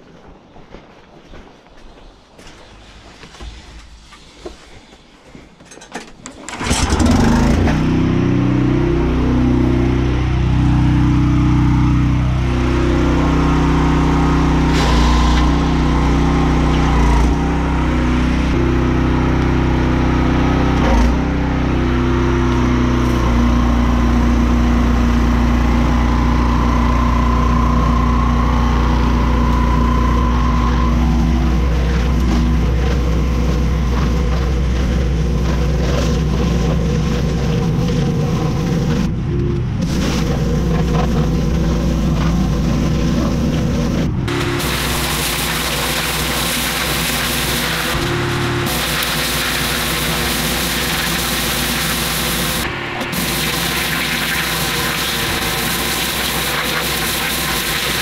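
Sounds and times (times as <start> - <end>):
pressure washer engine running: 6.5 - 39.1, 39.8 - 58.0
water spray hiss: 44.3 - 58.0.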